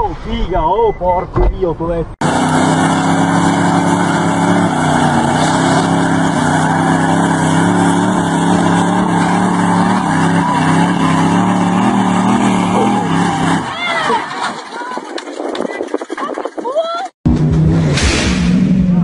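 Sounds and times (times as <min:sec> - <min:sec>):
truck engines at high revs: 0:02.2 - 0:19.0
tyres spinning in grass: 0:12.8 - 0:17.1.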